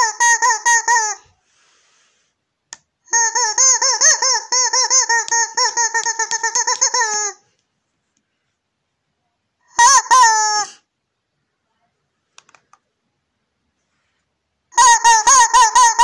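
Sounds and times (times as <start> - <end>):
rubber chicken squeaking: 0.0 - 1.3, 3.1 - 7.4, 9.8 - 10.8, 14.8 - 16.0.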